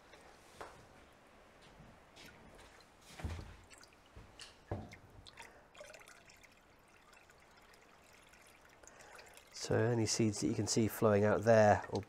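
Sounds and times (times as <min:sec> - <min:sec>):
water drips and trickles: 0:02.1 - 0:12.0
water splashes: 0:02.2 - 0:12.0
water poured into a bucket: 0:04.9 - 0:12.0.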